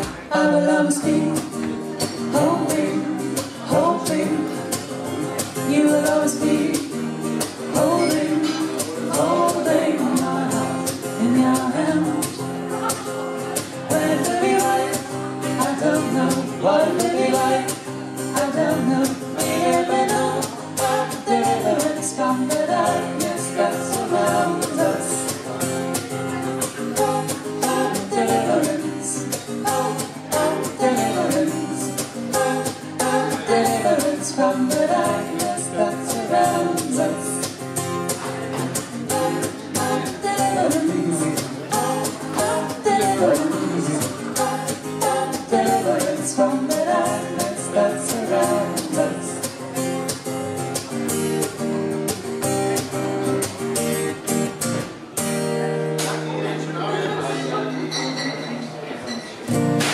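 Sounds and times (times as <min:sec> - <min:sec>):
man and woman singing: 0:00.0 - 0:25.5, 0:26.6 - 0:37.6, 0:38.6 - 0:49.6
strummed acoustic guitar: 0:00.0 - 0:59.9.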